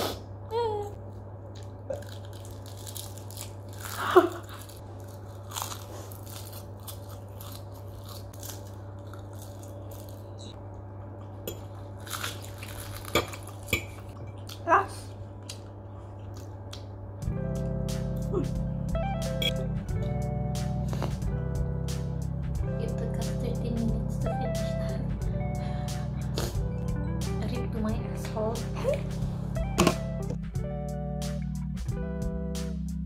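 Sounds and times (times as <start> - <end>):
low room hum: 0.0 - 33.0
crunching dried seaweed: 1.5 - 10.6, 11.7 - 14.2.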